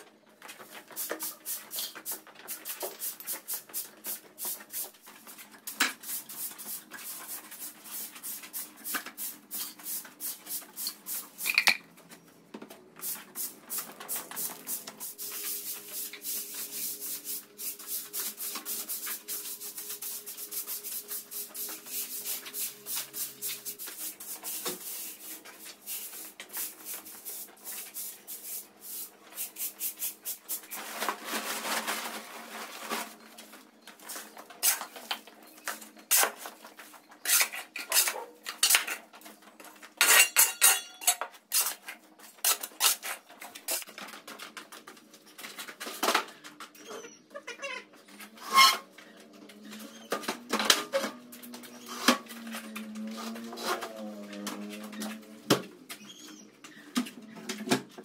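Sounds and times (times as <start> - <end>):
rhythmic brushing strokes: 13.0 - 30.7.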